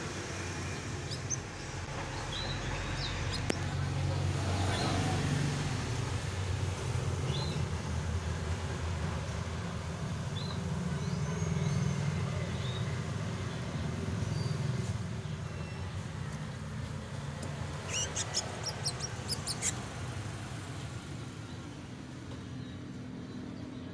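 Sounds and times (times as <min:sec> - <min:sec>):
canaries chirping: 0:00.3 - 0:05.3, 0:14.3 - 0:20.8.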